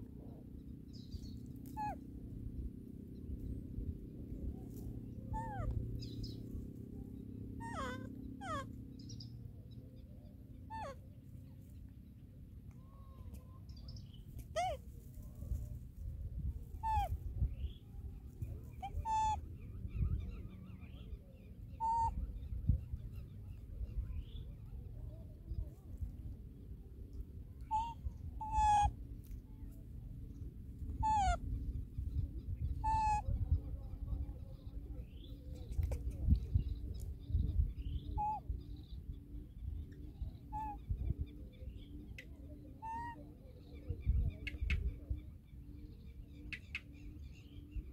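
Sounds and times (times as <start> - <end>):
birds chirping: 0.3 - 15.6, 16.7 - 25.7, 27.1 - 29.1, 30.1 - 47.9
monkey high-pitched cry: 1.6 - 2.0, 5.3 - 5.7, 7.6 - 8.7, 10.7 - 11.0, 14.5 - 14.8, 16.8 - 17.2, 18.8 - 19.4, 21.8 - 22.1, 27.7 - 28.9, 31.0 - 31.4, 32.8 - 33.2, 38.2 - 38.4, 40.5 - 40.8, 42.8 - 43.2.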